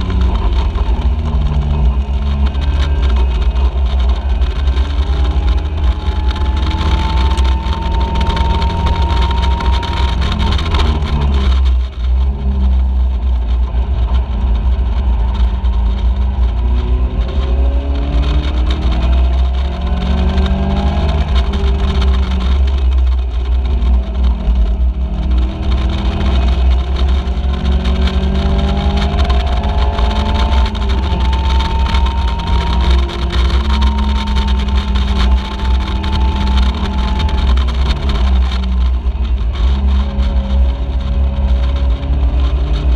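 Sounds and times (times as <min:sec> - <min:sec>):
race car engine revving through gears: 0:00.0 - 0:42.9.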